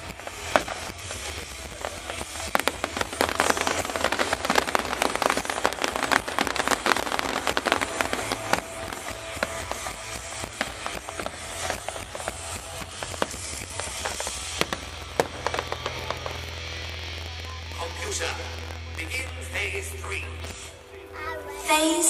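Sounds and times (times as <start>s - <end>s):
fireworks crackling: 0.0s - 22.0s.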